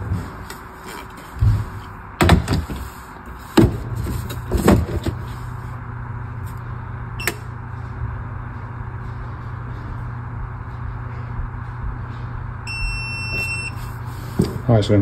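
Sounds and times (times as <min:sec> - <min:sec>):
low steady hum: 0:00.0 - 0:15.0
hard plastic knocks and clunks: 0:02.2 - 0:02.8.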